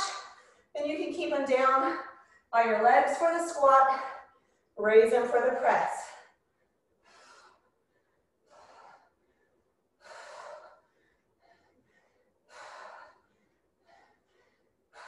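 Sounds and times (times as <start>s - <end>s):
woman breathing hard: 6.0s - 15.0s.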